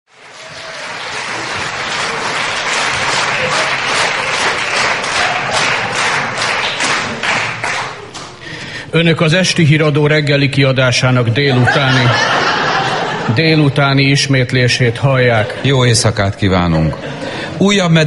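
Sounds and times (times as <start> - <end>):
audience applause: 0.1 - 8.4.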